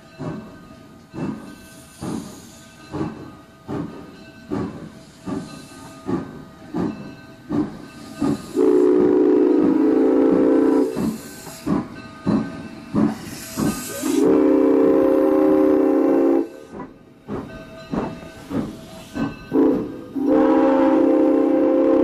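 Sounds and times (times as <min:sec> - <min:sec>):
steam whistle blasts: 0:08.5 - 0:11.0, 0:13.9 - 0:16.8, 0:19.5 - 0:22.0
regular short knocks: 0:11.0 - 0:13.9, 0:16.8 - 0:19.6.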